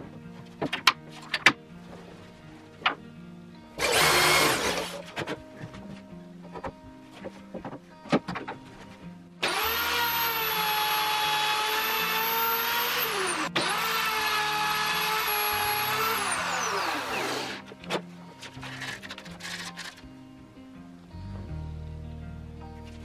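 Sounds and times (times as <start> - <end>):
electric router whining: 3.8 - 5.0, 9.4 - 17.7.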